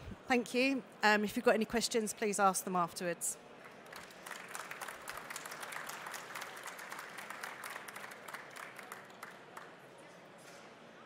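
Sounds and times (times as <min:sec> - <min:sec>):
audience applauding: 0:03.6 - 0:09.8.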